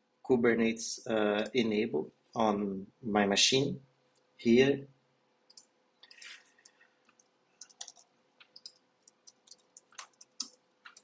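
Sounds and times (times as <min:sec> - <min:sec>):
typing on a keyboard: 0:07.1 - 0:11.0.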